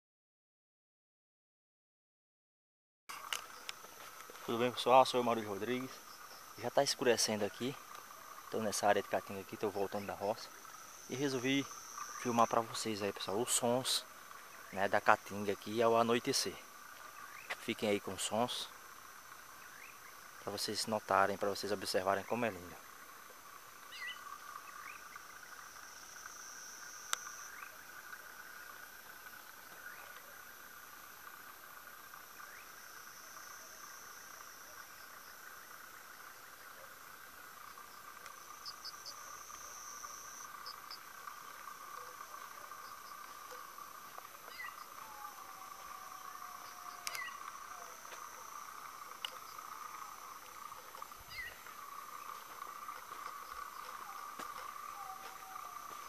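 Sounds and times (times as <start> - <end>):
frogs trilling: 3.1 - 56.0
insects buzzing: 3.1 - 56.0
falling whistled calls: 46.7 - 47.8, 51.3 - 52.4.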